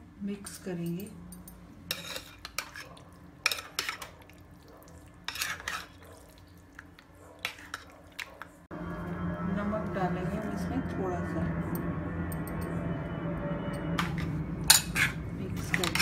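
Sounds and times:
spoon stirring thick marinade: 1.9s - 8.6s
spoon scraping plastic bowl: 5.3s - 6.0s.

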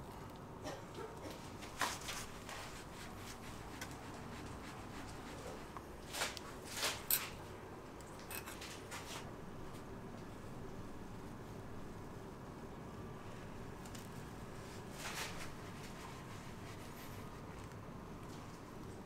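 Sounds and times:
faint room hum: 0.0s - 19.0s.

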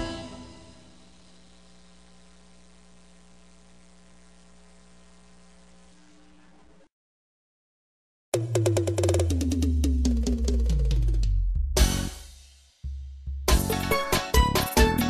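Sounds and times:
faint mains hum: 0.0s - 6.9s.

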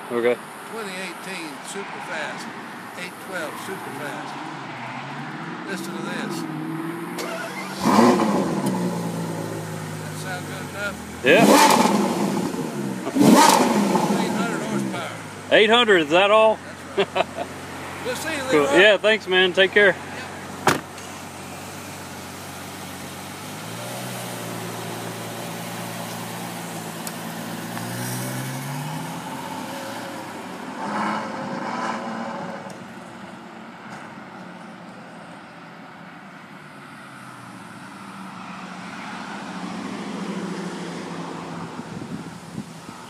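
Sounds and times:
car engine revving: 0.1s - 33.4s
car door shutting: 20.6s - 21.2s.

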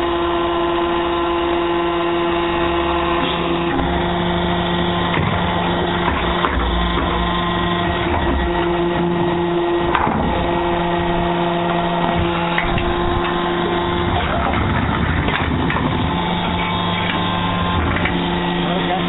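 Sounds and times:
hydraulic pump hum: 0.0s - 19.0s
machine clatter: 12.4s - 19.0s.

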